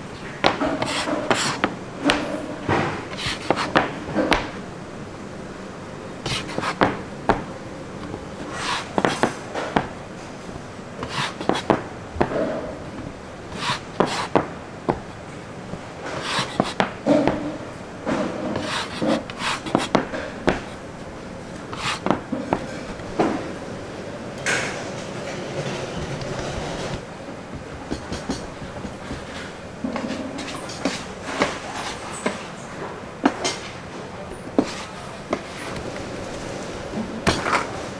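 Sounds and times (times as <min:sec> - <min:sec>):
dough rubbing and scraping: 0:00.4 - 0:04.6, 0:06.2 - 0:10.4, 0:11.0 - 0:12.9, 0:13.5 - 0:23.5, 0:25.5 - 0:32.5, 0:34.6 - 0:37.7
dough knocking on wooden board: 0:27.5 - 0:29.3.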